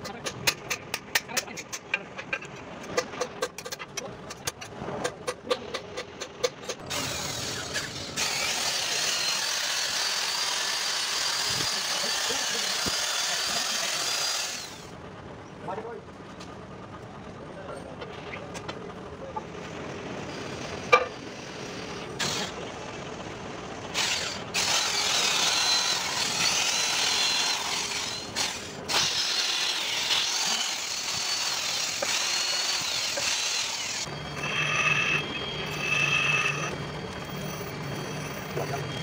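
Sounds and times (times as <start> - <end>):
electric drill whining: 6.9 - 14.9, 23.9 - 38.9
pulsing beep: 34.1 - 39.0.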